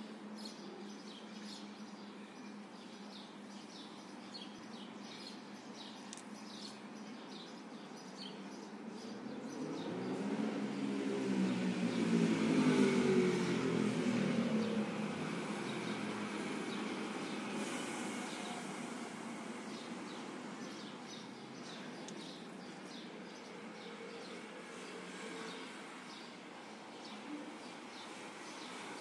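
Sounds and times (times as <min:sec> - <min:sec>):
vehicle passing: 0:09.4 - 0:20.3.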